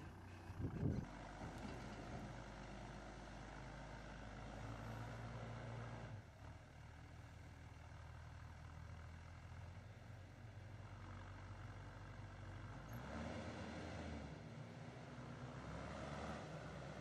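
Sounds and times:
diesel engine humming: 0.0s - 6.5s.

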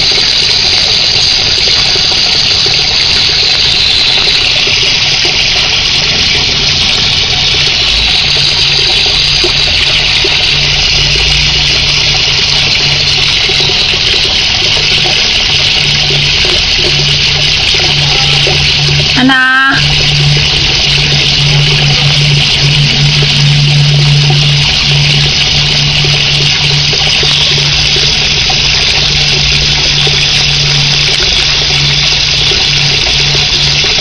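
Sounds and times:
running water rushing: 0.0s - 34.0s.

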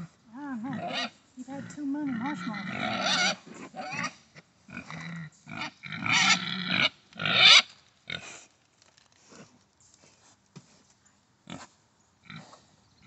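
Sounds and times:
sows calling: 0.0s - 4.2s.

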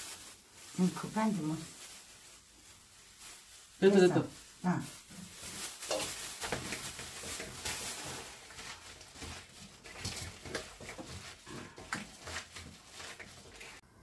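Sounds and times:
plastic gloves and bag rustling: 0.0s - 14.0s
wet squishing of vegetables: 0.0s - 14.0s.

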